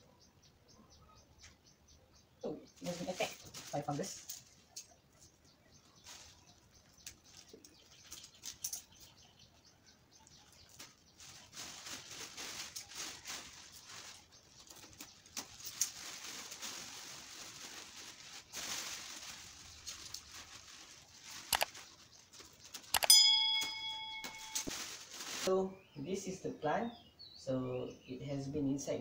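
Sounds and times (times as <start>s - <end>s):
plastic bag rustling and crinkling: 2.8s - 9.0s, 10.3s - 22.9s, 23.6s - 25.5s.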